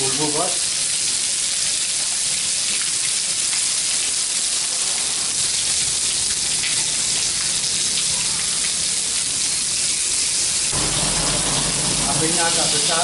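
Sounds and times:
fish sizzling in a pan: 0.0 - 13.0.

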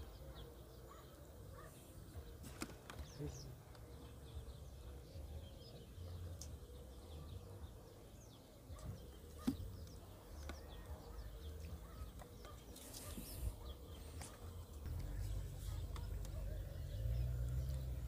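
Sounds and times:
small birds chirping: 0.0 - 18.0.

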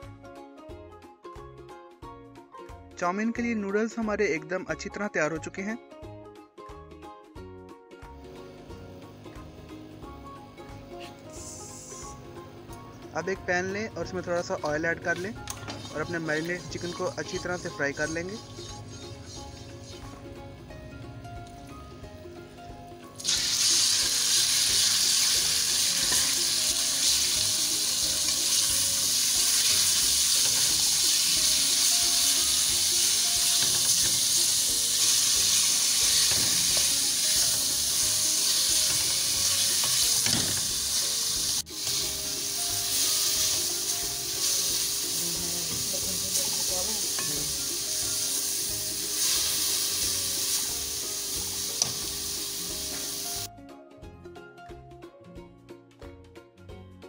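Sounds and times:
spatula stirring in a metal pan: 15.6 - 20.1
chicken sizzling in hot oil: 23.2 - 53.5.

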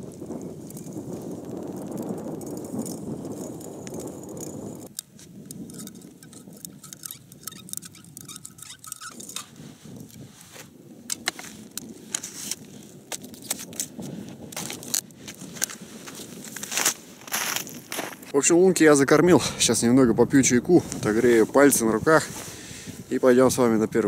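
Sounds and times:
metal tube clinking: 2.7 - 9.6.

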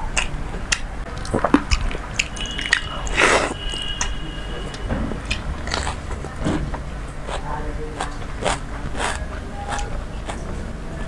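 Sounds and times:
fingers squelching wet rice: 0.0 - 4.2
chewing and lip smacks: 0.0 - 6.3, 7.2 - 10.5.

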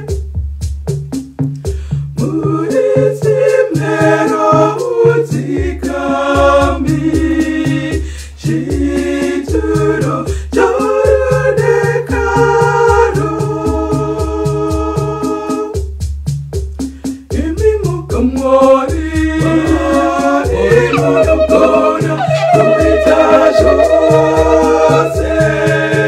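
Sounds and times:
steady beat: 18.9 - 26.0
pulsing bass line: 19.4 - 26.0
woman singing in harmony: 19.4 - 26.0.

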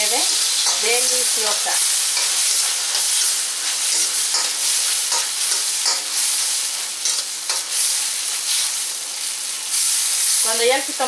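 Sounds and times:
metal spoon scraping pan: 0.0 - 7.8
vegetables sizzling in oil: 0.0 - 11.0.

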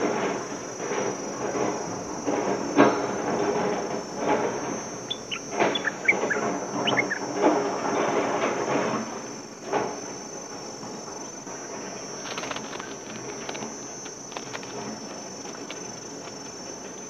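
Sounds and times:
insects droning: 0.0 - 17.0
bird chirps: 5.1 - 7.3.

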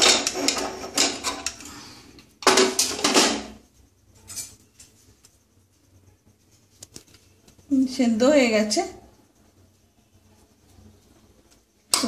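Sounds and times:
pressure cooker metal clatter: 0.0 - 1.6, 2.4 - 3.6.

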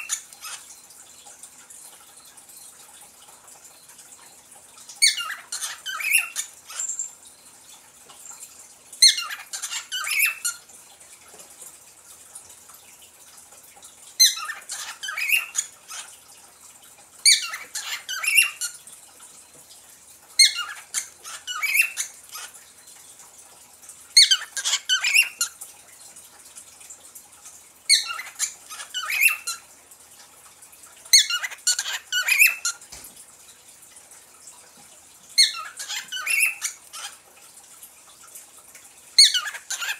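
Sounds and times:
parrot chirping: 0.0 - 0.8, 4.9 - 7.5, 8.2 - 10.6, 14.2 - 16.1, 17.2 - 18.8, 20.4 - 22.7, 24.2 - 25.6, 27.9 - 29.7, 31.1 - 32.8, 35.4 - 37.3, 39.2 - 39.9.

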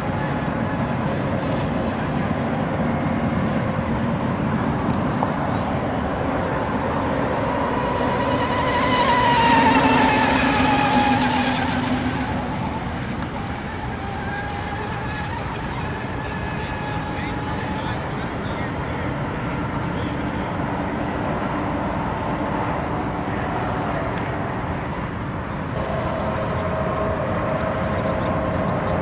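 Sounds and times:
radio-controlled boat motor whine: 0.0 - 29.0.

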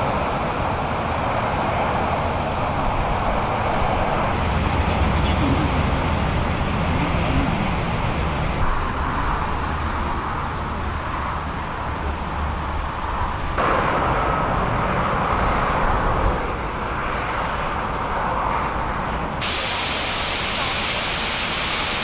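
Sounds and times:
highway traffic hum: 0.0 - 22.0.

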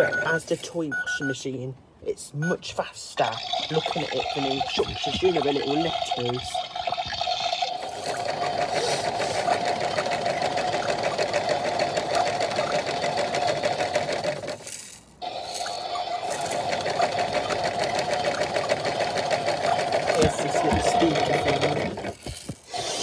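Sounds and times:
small electric motor whirring: 7.7 - 23.0.

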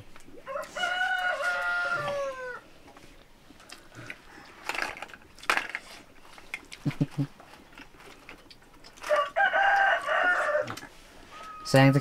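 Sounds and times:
rooster crowing: 0.4 - 2.6, 9.0 - 12.0.

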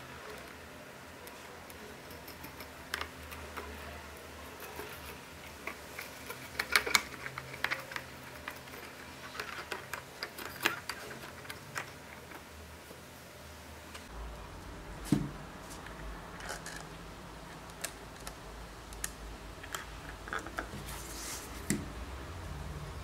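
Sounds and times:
small clicks and rubbing: 4.5 - 12.6.

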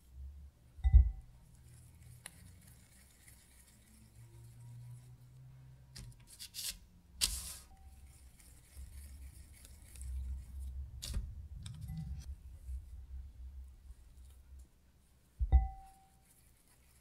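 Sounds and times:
parchment paper rustling: 1.5 - 5.3, 6.0 - 12.9.

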